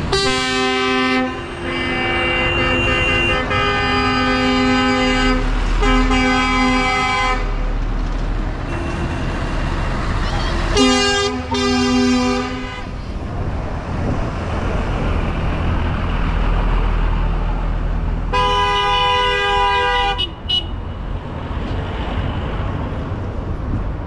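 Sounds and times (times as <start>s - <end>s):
tractor engines rumbling: 0.0s - 24.0s
vehicle horn blast: 0.1s - 7.6s, 8.7s - 9.4s, 10.7s - 12.9s, 18.3s - 20.7s.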